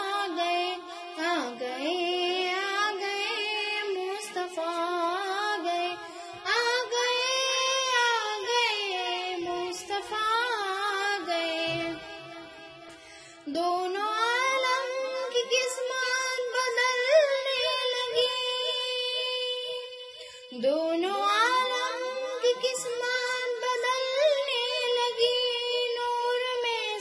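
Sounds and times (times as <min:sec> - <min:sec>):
high voice singing: 0:05.6 - 0:12.8.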